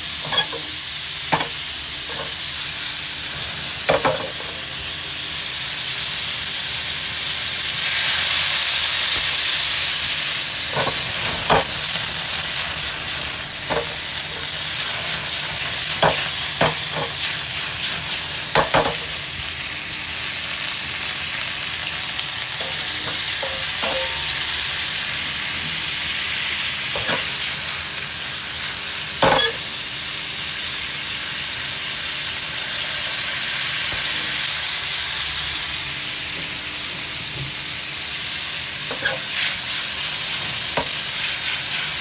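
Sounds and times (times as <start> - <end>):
meat sizzling in a pan: 0.0 - 42.0
utensil knocking and scraping pan: 0.2 - 0.7, 10.7 - 11.8, 13.7 - 17.3, 27.0 - 27.4.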